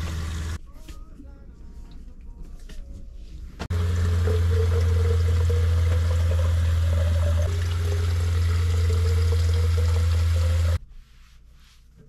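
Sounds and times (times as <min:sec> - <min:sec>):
water pump humming: 0:00.0 - 0:00.6, 0:03.7 - 0:10.8
water running into plastic bottle: 0:03.7 - 0:10.8.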